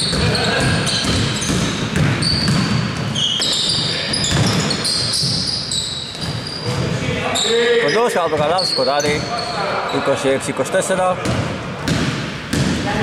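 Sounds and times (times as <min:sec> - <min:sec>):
basketball bouncing: 0:00.0 - 0:06.9, 0:11.2 - 0:13.0
sneakers squeaking on floor: 0:00.0 - 0:10.2.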